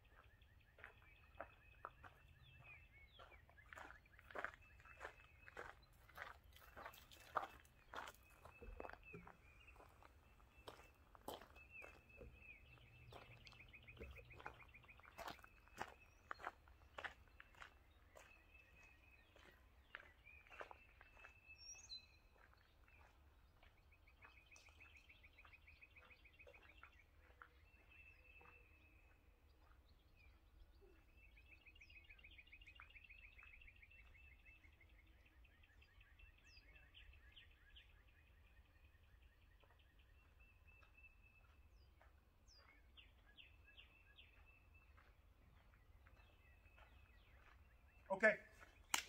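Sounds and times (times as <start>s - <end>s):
songbirds trilling: 0.0s - 49.0s
high bird chirps: 0.1s - 29.8s.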